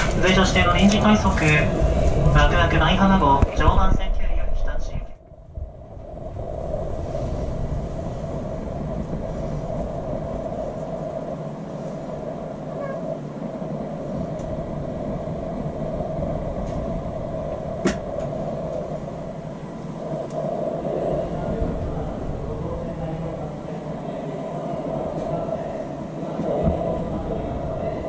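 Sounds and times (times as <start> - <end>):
electric train humming: 0.0 - 3.8, 5.6 - 28.0.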